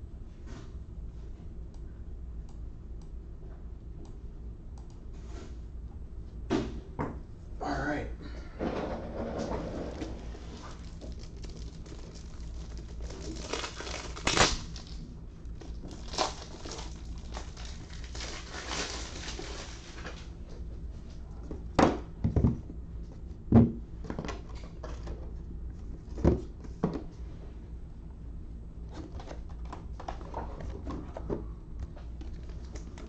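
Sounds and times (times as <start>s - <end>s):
faint low hum: 0.0s - 33.0s
crinkling and rustling: 9.2s - 20.7s, 28.9s - 33.0s.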